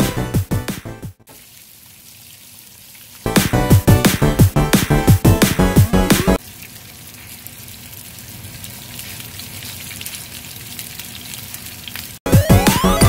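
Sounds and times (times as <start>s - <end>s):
background music: 0.0s - 1.2s, 3.3s - 6.4s, 12.3s - 13.0s
fish sizzling in hot oil: 1.3s - 3.3s, 6.4s - 12.2s.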